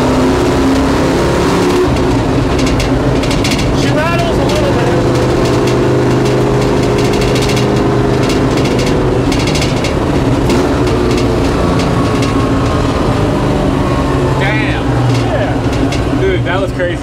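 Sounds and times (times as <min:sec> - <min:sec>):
car engine running at cruise: 0:00.0 - 0:17.0
rattling: 0:01.7 - 0:16.6.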